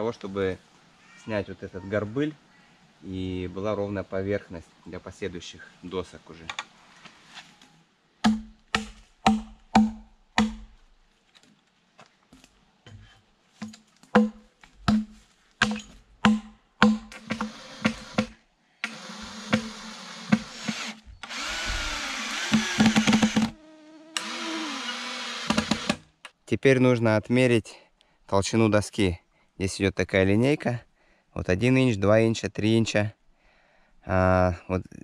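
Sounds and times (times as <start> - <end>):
sharp knocks: 8.2 - 10.7, 13.6 - 18.4
power drill whining: 18.8 - 23.6, 24.2 - 26.0.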